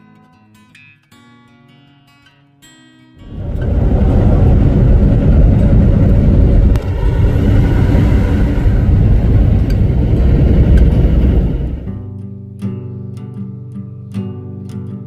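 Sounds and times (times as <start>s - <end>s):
truck road and wind rumble: 3.2s - 12.0s.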